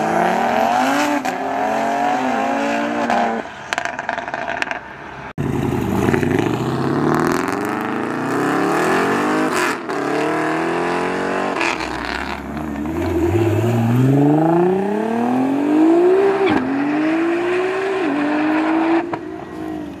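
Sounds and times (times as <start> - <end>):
car engine accelerating hard: 5.4 - 20.0.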